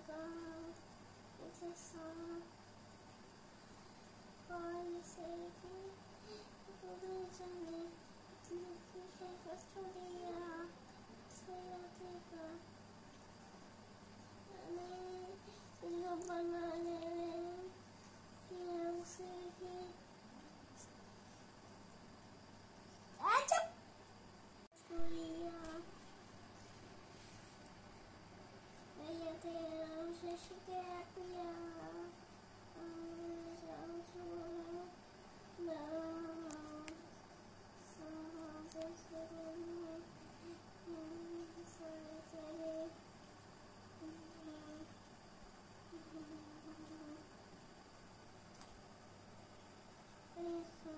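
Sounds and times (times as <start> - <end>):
child humming: 32.8 - 34.8, 45.9 - 47.2.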